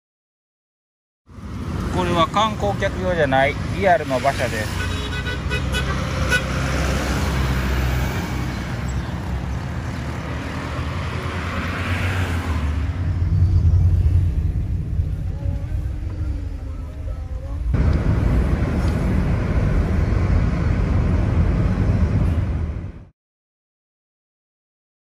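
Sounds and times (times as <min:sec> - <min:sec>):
traffic rumble: 0:01.3 - 0:23.1
vehicle passing: 0:01.3 - 0:23.1
short horn toots: 0:04.4 - 0:06.6.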